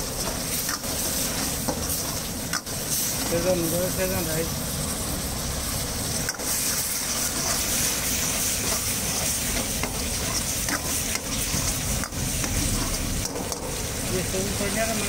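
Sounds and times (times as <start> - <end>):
food sizzling in a wok: 0.0 - 15.0
metal ladle scraping pan: 6.2 - 14.1.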